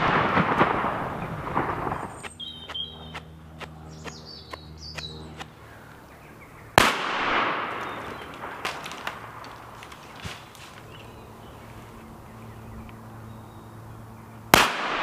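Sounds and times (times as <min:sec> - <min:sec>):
shotgun shot echoing: 0:06.8 - 0:09.6, 0:14.5 - 0:15.0.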